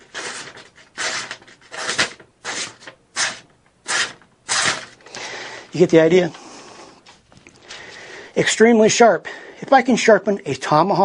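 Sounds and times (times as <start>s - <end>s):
blade slicing paper: 0.0s - 5.0s.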